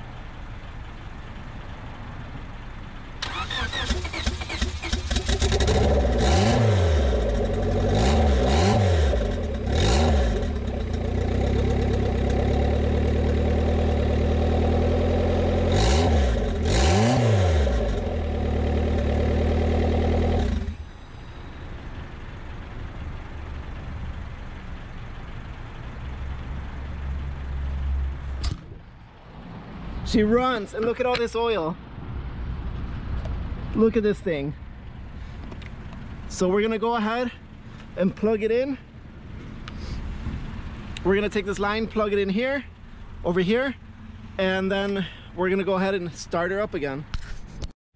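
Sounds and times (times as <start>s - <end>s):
car engine revving: 3.2s - 20.9s.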